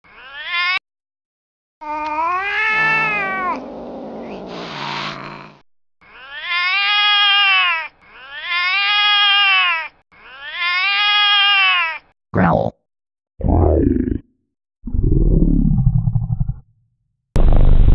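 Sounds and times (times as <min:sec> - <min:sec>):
cat yowling: 0:00.1 - 0:00.8, 0:01.8 - 0:05.3, 0:06.1 - 0:12.0.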